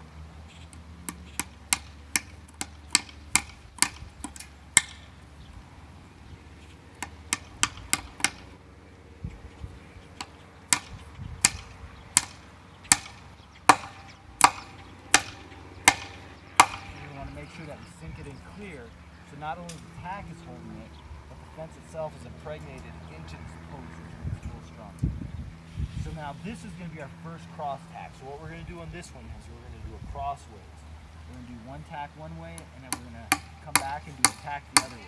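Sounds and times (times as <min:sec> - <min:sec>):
hammer striking tacks into wood: 0:01.0 - 0:05.1, 0:07.0 - 0:08.5, 0:10.2 - 0:17.2, 0:32.6 - 0:35.0.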